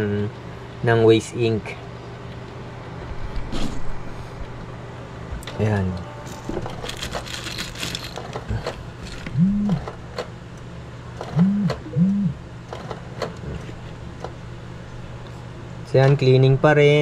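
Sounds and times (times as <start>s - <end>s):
printer low hum: 1.7s - 17.0s
printer motor whirs: 6.4s - 10.3s.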